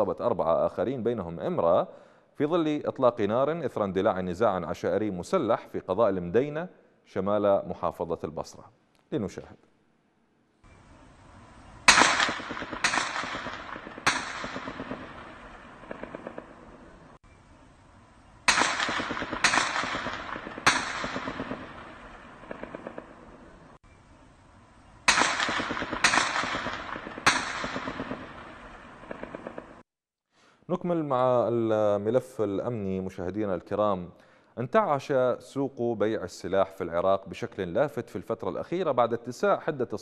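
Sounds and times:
faint automatic gunfire: 11.9 - 17.0, 18.5 - 23.7, 25.1 - 29.8
loud gunshots echoing: 11.9 - 17.1, 18.5 - 23.7, 25.1 - 29.8.

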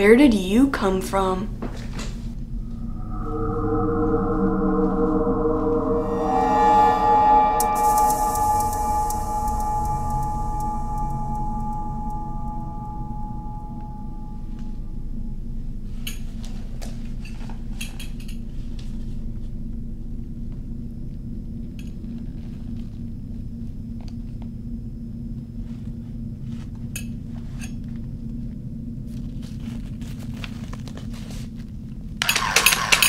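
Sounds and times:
steady low drone: 2.3 - 24.4
small cymbals tapping: 7.6 - 13.9.

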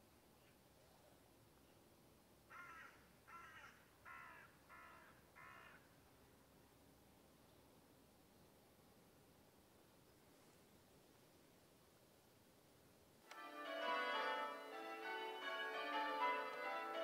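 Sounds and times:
distant crow cawing: 2.5 - 5.9.

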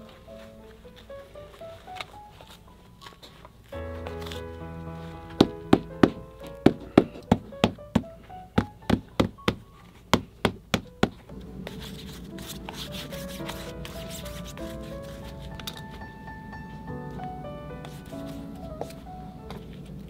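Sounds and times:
background music: 0.0 - 20.0
hammer tapping leather: 5.4 - 11.2
glue brush rubbing: 11.6 - 15.6.

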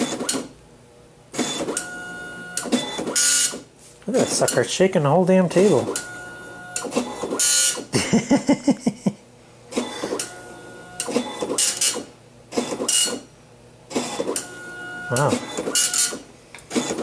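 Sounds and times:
dot matrix printer rasping: 1.4 - 4.6, 9.8 - 13.2, 13.9 - 17.0.

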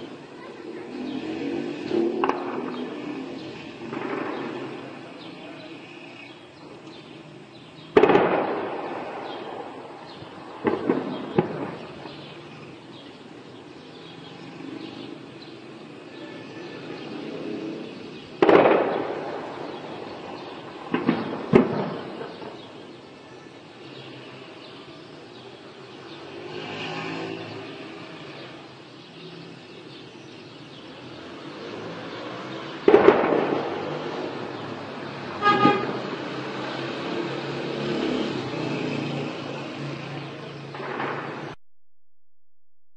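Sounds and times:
heavy bangs with rumbling echo: 2.1 - 3.0, 7.9 - 12.2, 18.4 - 22.8, 32.7 - 34.7, 40.8 - 41.6
car horn toot: 35.4 - 36.0.

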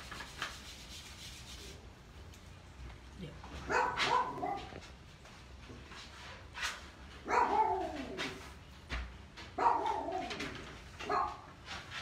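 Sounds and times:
dog barking: 3.6 - 4.8, 7.2 - 8.2, 9.6 - 10.4, 11.0 - 11.5.

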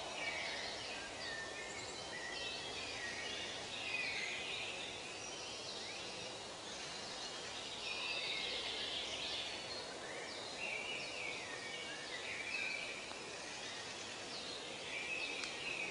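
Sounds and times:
birds chirping and singing: 0.0 - 15.9
steady background hiss: 0.0 - 15.9.

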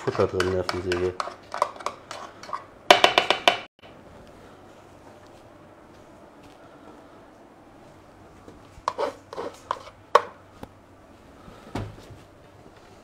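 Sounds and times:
metal spoon knocking plastic bowl: 2.9 - 3.7.

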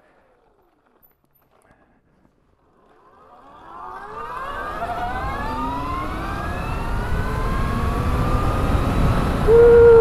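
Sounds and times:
electric motorbike motor whining: 3.2 - 10.0
wind and road rumble: 4.2 - 10.0.

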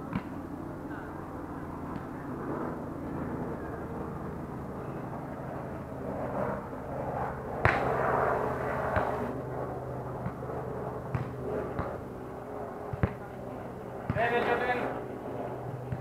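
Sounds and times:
hand slapping a volleyball: 7.6 - 7.9, 11.1 - 12.0.

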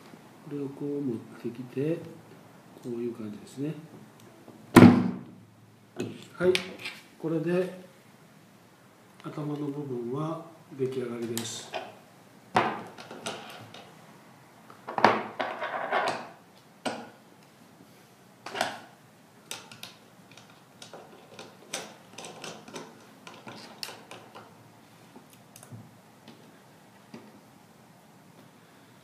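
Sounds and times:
metal parts clicking and clinking: 19.5 - 24.4.

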